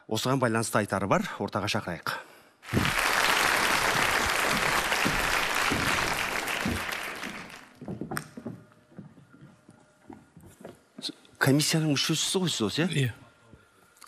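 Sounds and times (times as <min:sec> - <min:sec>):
audience applauding: 0:02.6 - 0:07.8.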